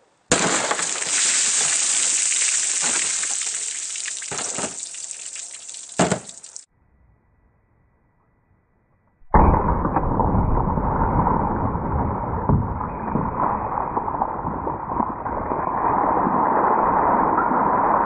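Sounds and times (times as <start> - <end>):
water gushing and splashing: 0.3 - 6.7
gunshot bang: 6.0 - 6.3, 9.3 - 10.9.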